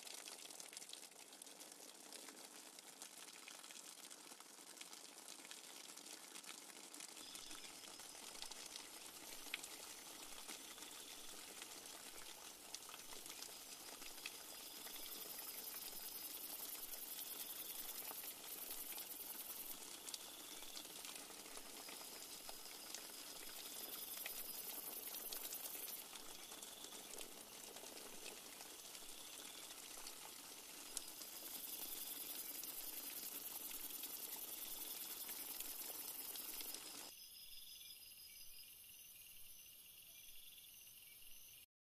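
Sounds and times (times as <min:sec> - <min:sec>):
rain falling on foliage: 0:00.0 - 0:37.1
high insect trill: 0:13.5 - 0:20.9, 0:21.7 - 0:27.2, 0:30.8 - 0:41.7.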